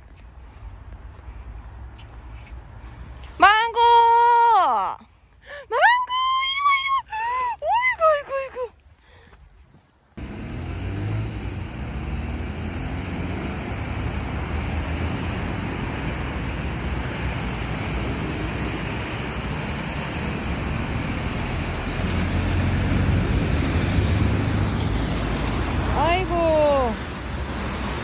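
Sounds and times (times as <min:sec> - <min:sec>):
cars driving by: 0:10.2 - 0:28.0.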